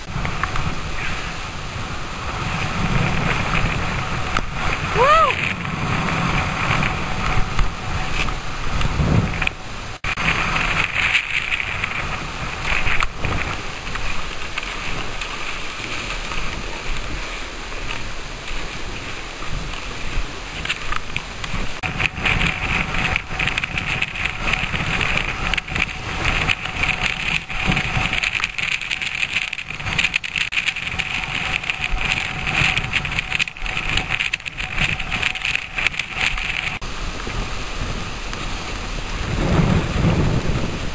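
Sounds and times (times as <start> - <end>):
wind rumbling on microphone: 0.0 - 40.9.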